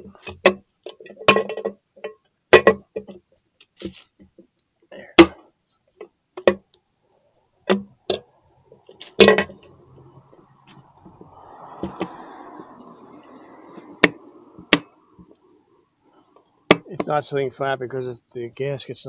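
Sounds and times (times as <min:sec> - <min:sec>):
metal parts clinking: 0:03.7 - 0:04.2.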